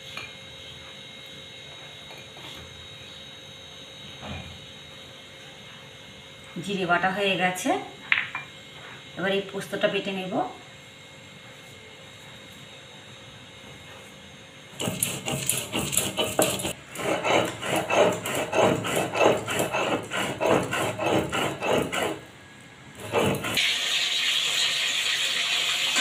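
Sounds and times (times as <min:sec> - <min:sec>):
stone roller grinding seeds: 0:14.7 - 0:22.3, 0:23.0 - 0:23.7
fish frying in a wok: 0:23.6 - 0:26.0.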